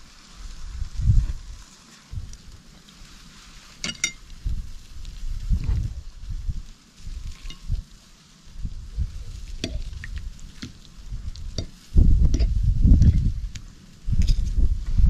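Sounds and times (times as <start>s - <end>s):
low rumble with thumps: 4.4s - 6.6s, 11.1s - 15.0s.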